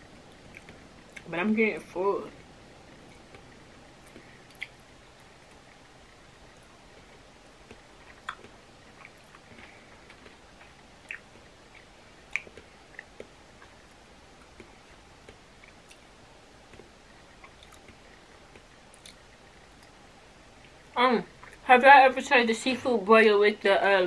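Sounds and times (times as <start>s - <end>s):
chewing and mouth smacks: 0.3s - 1.3s, 3.1s - 5.8s, 6.5s - 16.1s, 16.7s - 20.0s.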